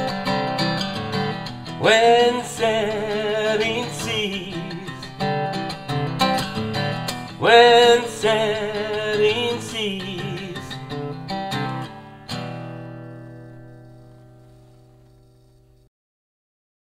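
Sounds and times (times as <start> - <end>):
acoustic guitar chords: 0.0 - 15.9
person singing: 1.8 - 5.6, 7.2 - 11.8.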